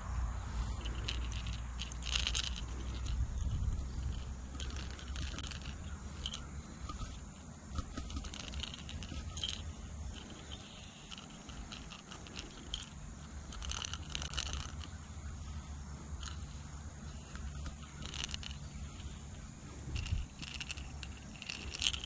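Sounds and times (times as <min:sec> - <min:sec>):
low steady rumble: 0:00.0 - 0:22.0.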